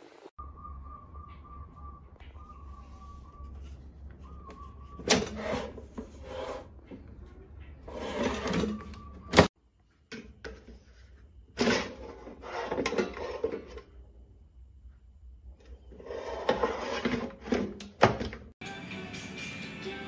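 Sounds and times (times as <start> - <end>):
plastic drawer scraping: 5.0 - 7.1, 7.8 - 9.5, 11.6 - 13.8, 16.0 - 18.4.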